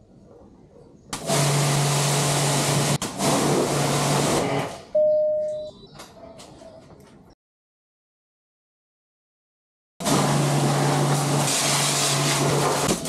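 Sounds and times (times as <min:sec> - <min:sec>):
pressure washer motor hum: 0:01.2 - 0:04.6, 0:10.0 - 0:13.0
clear tone: 0:05.0 - 0:06.0.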